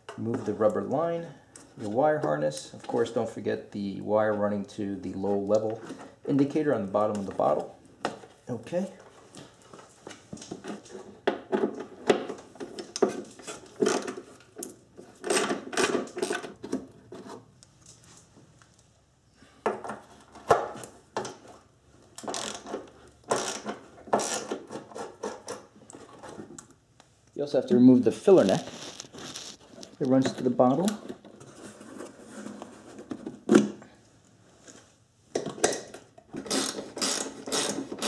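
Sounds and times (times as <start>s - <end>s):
tools clicking and knocking on plastic: 10.3s - 17.0s, 35.3s - 38.0s.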